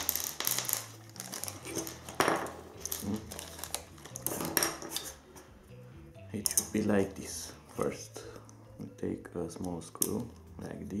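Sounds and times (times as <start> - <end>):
plastic bag crinkling: 0.0 - 5.1.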